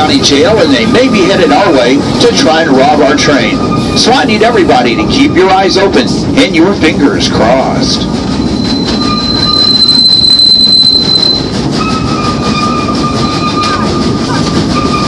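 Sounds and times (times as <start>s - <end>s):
train cars rumbling on track: 0.0s - 15.0s
train wheels squealing: 3.3s - 4.1s, 8.1s - 15.0s.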